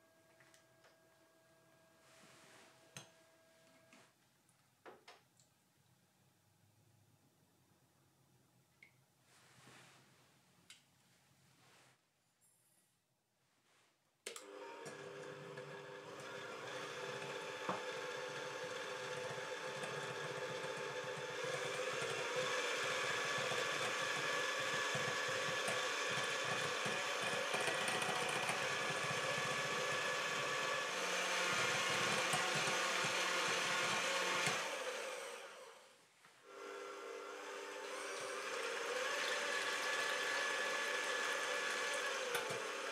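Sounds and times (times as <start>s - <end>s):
electric hand mixer whisking: 14.4s - 35.9s, 36.5s - 42.9s.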